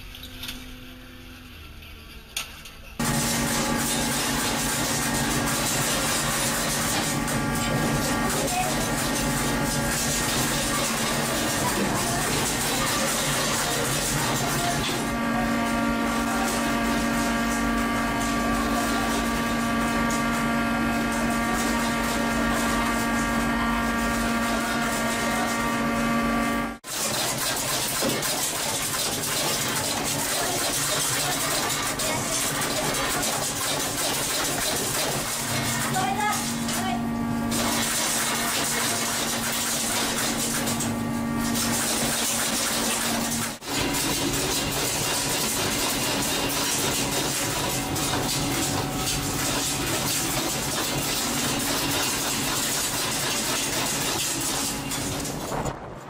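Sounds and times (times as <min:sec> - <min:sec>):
ship machinery droning: 0:00.0 - 0:26.9, 0:29.6 - 0:56.0.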